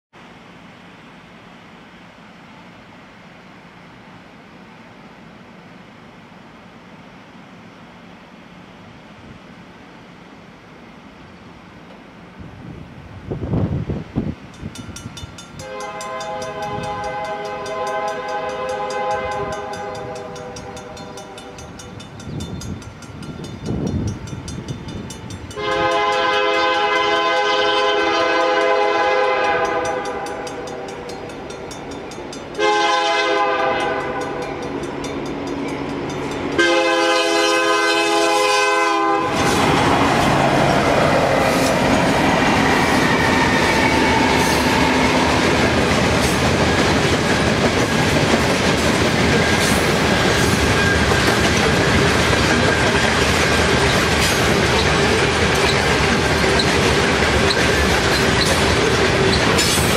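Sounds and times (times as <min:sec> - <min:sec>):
train wheels clacking over rails: 0:14.4 - 0:27.3, 0:28.6 - 0:37.5, 0:39.2 - 0:59.9
crossing bell ringing: 0:14.5 - 0:26.3, 0:29.5 - 0:37.4
train horn blasts: 0:15.6 - 0:21.7, 0:25.5 - 0:31.3, 0:32.5 - 0:34.8, 0:36.5 - 0:41.8, 0:42.6 - 0:45.6.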